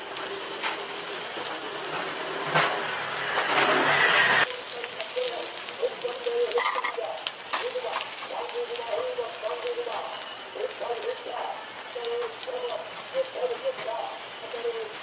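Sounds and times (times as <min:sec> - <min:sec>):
loud hiss: 0:00.0 - 0:04.6
fish sizzling on a grill: 0:00.0 - 0:15.0.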